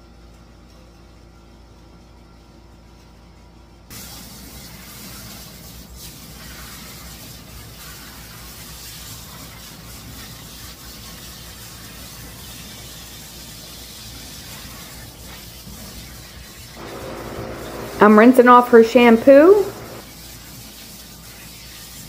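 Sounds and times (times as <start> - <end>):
hose spray hissing: 16.8 - 20.4.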